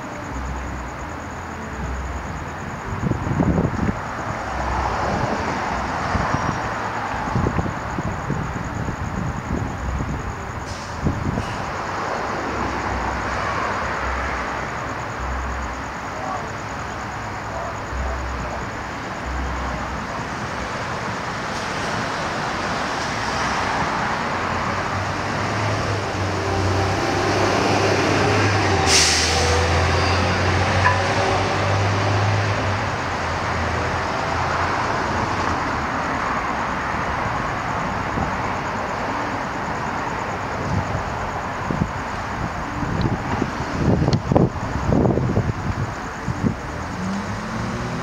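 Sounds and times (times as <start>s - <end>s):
outdoor traffic noise: 0.0s - 48.0s
short sharp hiss: 28.9s - 29.4s.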